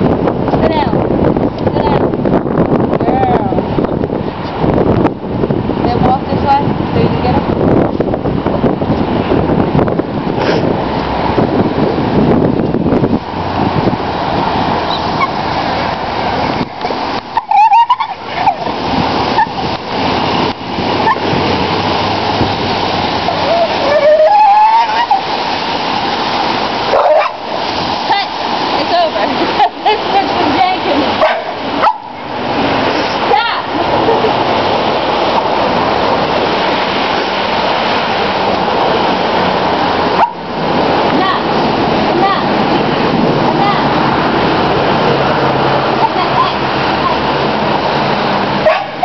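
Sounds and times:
loud rushing noise: 0:00.0 - 0:49.0
wind buffeting microphone: 0:00.0 - 0:49.0
high wavering squeal: 0:17.3 - 0:18.7, 0:23.2 - 0:25.3.

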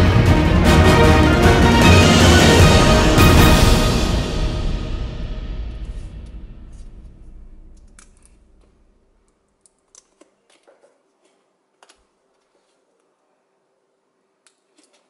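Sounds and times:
background music: 0:00.0 - 0:08.9.

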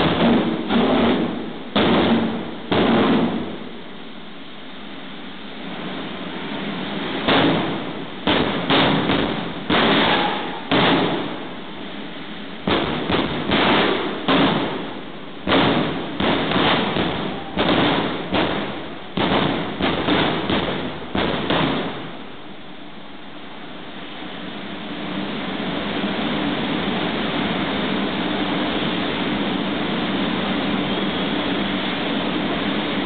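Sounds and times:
afterburner blasts: 0:00.0 - 0:04.0, 0:05.8 - 0:22.4
jet engine rushing: 0:05.6 - 0:22.4, 0:24.2 - 0:33.0.

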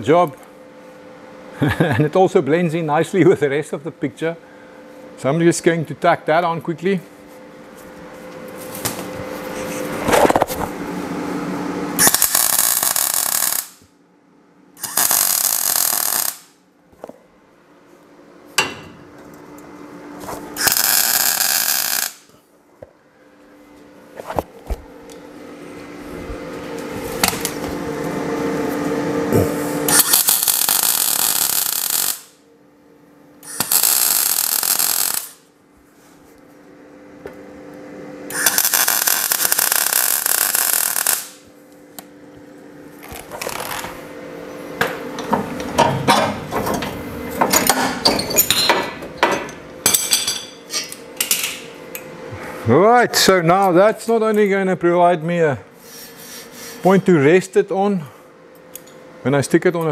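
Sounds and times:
faint hum: 0:00.0 - 0:59.9
welding bursts: 0:12.0 - 0:13.8, 0:14.8 - 0:16.6, 0:20.6 - 0:22.3, 0:29.9 - 0:32.4, 0:33.4 - 0:35.5, 0:38.3 - 0:41.4.

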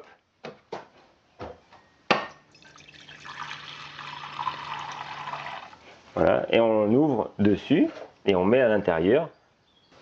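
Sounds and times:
tap water filling a saucepan: 0:02.5 - 0:05.8.

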